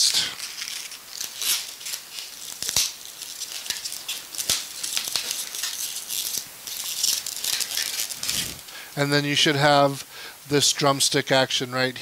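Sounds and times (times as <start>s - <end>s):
balloons rubbing and crinkling: 0.0s - 8.7s.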